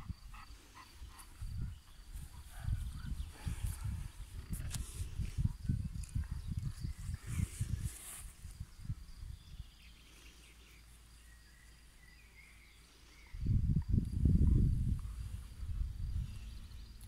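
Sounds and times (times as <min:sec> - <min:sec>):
wind buffeting the microphone: 0:00.0 - 0:10.0, 0:13.2 - 0:17.0
faint bird chirps: 0:08.8 - 0:13.6.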